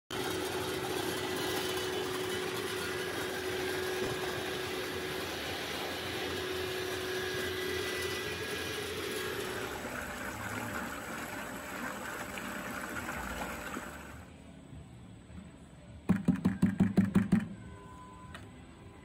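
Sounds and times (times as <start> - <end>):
liquid churning: 0.1 - 14.3
mixer motor and pump hum: 0.1 - 14.6
faint constant whine: 0.1 - 19.0.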